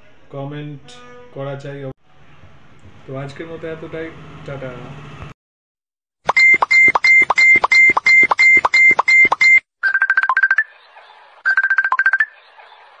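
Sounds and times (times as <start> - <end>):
electronic chirps: 6.3 - 10.7, 11.5 - 12.4
short high electronic beeps: 6.3 - 10.7, 11.5 - 12.4.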